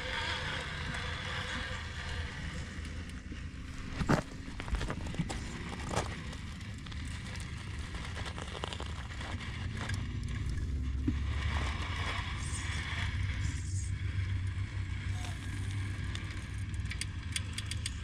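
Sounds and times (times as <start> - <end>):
rc car drivetrain running: 0.0 - 10.5
tyres knocking and scraping on rock: 3.8 - 6.6.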